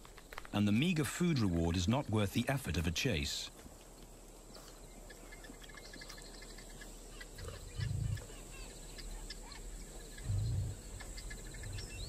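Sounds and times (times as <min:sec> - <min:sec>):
small birds chirping: 0:00.0 - 0:12.0
high insect whine: 0:04.2 - 0:12.0.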